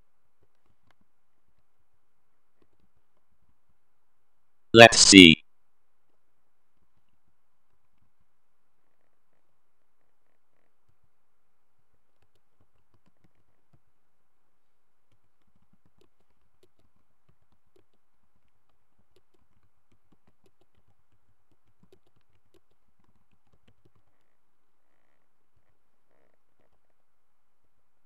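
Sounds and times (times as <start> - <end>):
typing on keyboard: 12.2 - 13.8, 15.1 - 24.2.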